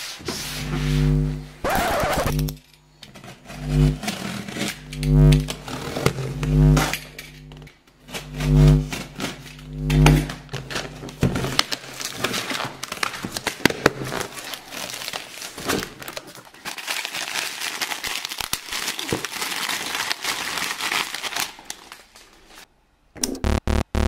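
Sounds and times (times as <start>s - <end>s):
plastic wrapper crinkling: 10.6s - 22.6s.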